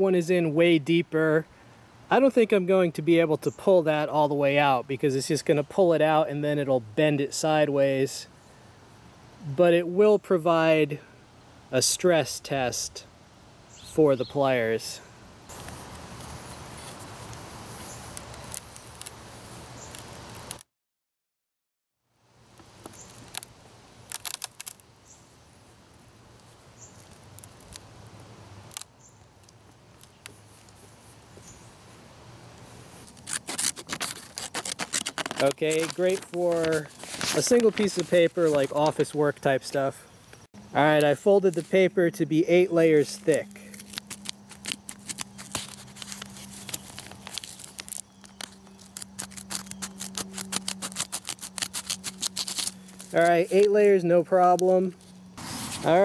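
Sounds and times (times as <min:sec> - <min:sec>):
scissors snipping paper: 0:33.0 - 0:39.2, 0:43.2 - 0:53.7.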